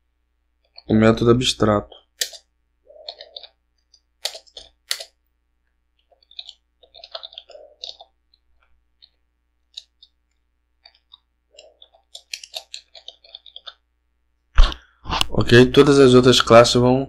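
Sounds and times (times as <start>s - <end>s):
keyboard typing: 1.9s - 5.3s, 6.0s - 13.9s.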